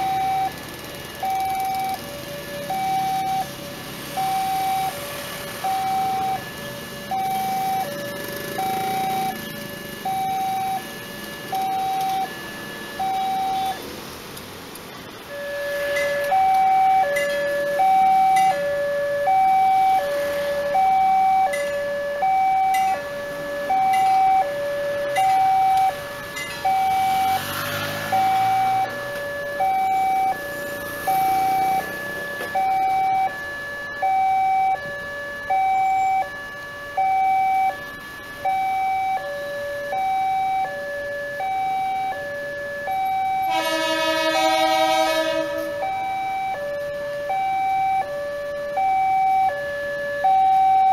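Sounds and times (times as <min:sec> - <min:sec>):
two-note electronic warning chime: 0:05.6 - 0:13.9, 0:15.3 - 0:27.4
loud horn: 0:43.4 - 0:45.9.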